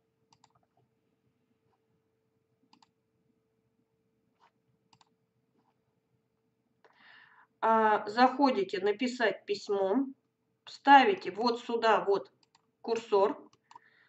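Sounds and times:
computer mouse clicks: 0.3s - 0.8s, 2.7s - 3.0s, 4.4s - 5.8s, 12.4s - 12.7s, 13.5s - 13.9s.

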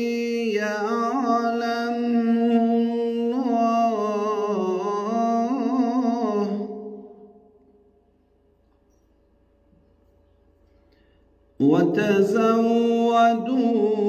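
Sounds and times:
man chanting into microphone: 0.0s - 7.2s, 11.6s - 14.0s.

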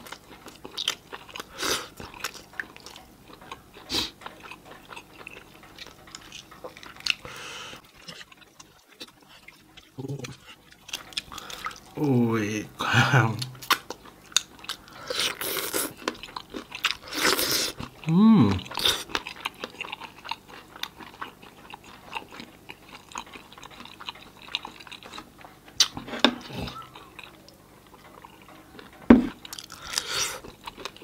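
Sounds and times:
person chewing chicken: 0.0s - 12.3s, 13.2s - 31.0s.

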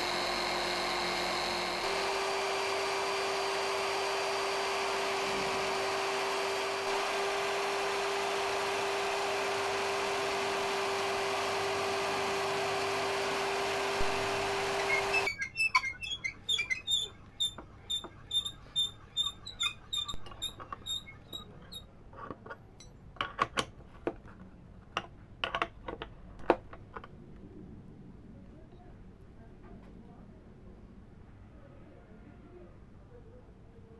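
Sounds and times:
bit cutting into wood: 0.0s - 17.6s
drill motor whining: 0.0s - 21.1s
regular squeaks: 14.8s - 22.3s.

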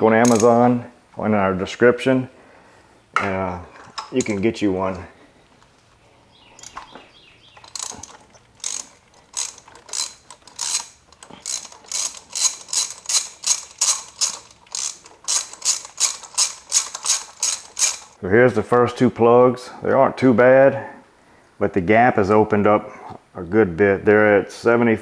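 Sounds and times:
hand ratchet clicking: 0.2s - 0.6s, 7.6s - 18.2s.

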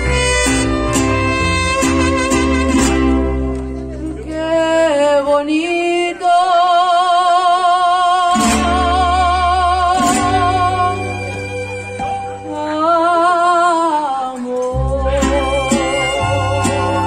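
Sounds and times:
guitars strumming: 0.0s - 4.6s, 8.3s - 12.4s, 14.7s - 17.0s
person singing with vibrato: 12.5s - 17.0s.

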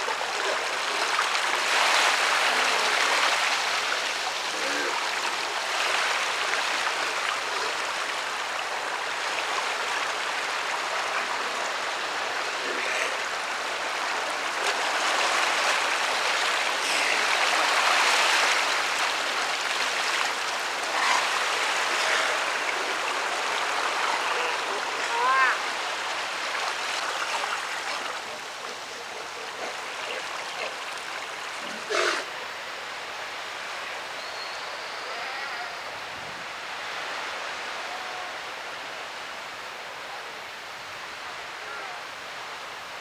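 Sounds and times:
surf washing over rocks: 0.0s - 33.6s
sea lions calling faintly: 20.8s - 25.8s, 34.3s - 36.0s, 37.7s - 38.6s.

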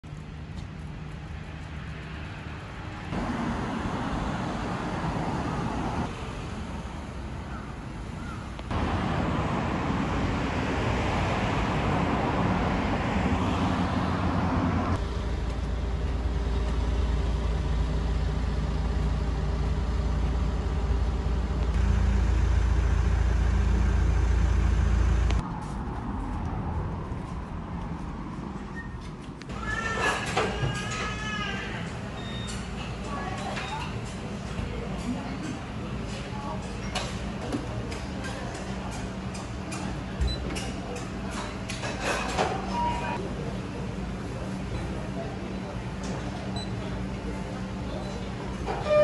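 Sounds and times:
cars going past: 8.7s - 15.1s.

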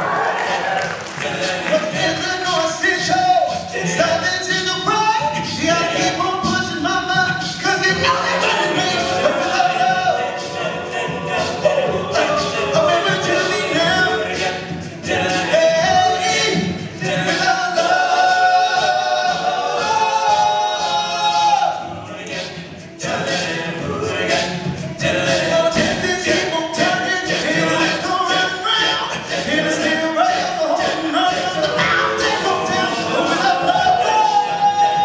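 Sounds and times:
male a cappella group singing: 0.0s - 35.0s.

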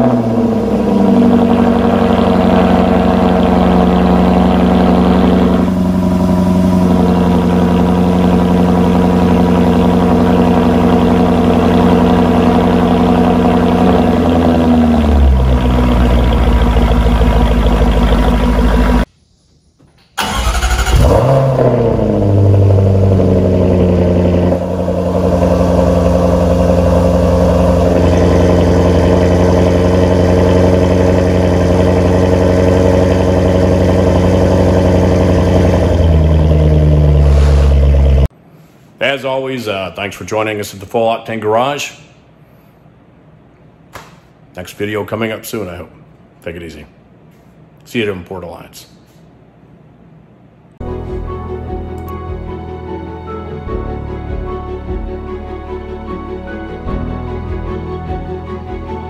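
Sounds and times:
car engine idling high: 0.0s - 19.1s, 20.2s - 38.3s
car engine starting with rev: 0.0s - 19.1s, 20.2s - 38.3s.

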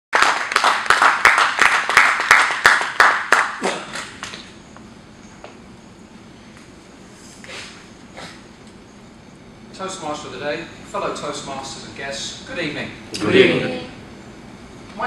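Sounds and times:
audience applauding: 0.1s - 4.1s.

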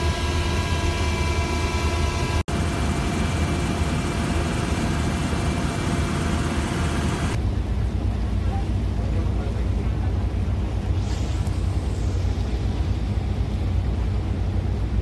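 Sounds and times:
high whining tones: 0.0s - 7.4s
helicopter engine and rotor drone: 0.0s - 15.0s.

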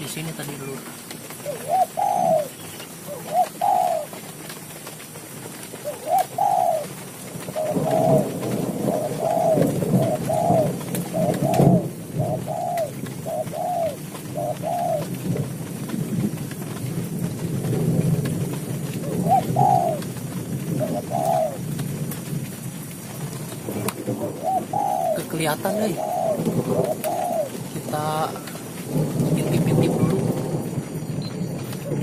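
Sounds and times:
dove cooing: 0.0s - 16.1s, 16.7s - 32.0s.

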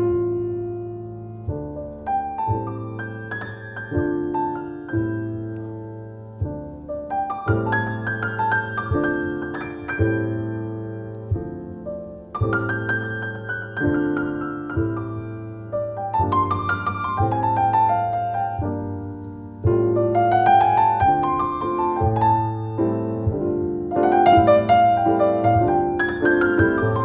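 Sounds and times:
grand piano playing chords: 0.0s - 27.0s.

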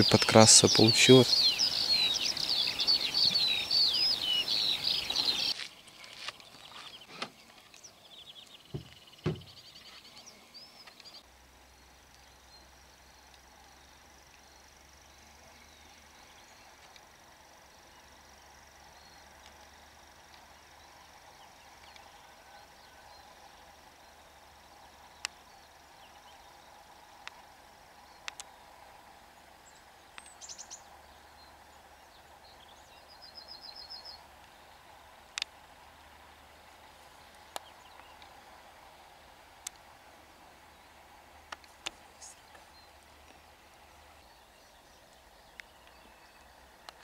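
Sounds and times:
busy birdsong: 0.0s - 47.0s
dull knocks: 8.7s - 9.6s
high insect buzz: 8.7s - 11.0s.

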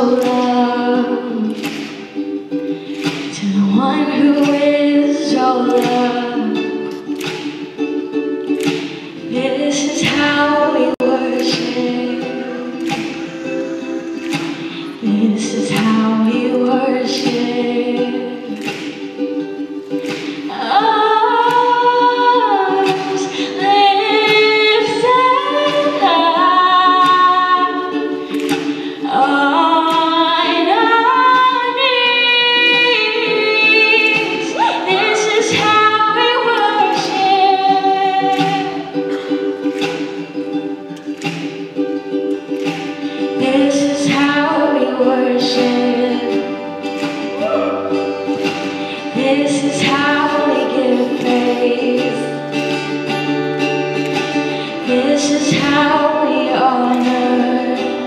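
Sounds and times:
woman singing worship song: 0.0s - 1.6s, 3.3s - 6.6s, 9.3s - 18.5s, 20.5s - 27.8s, 28.6s - 38.9s, 43.4s - 46.5s, 49.1s - 52.4s, 54.8s - 58.0s
strummed acoustic guitar: 0.0s - 58.0s.

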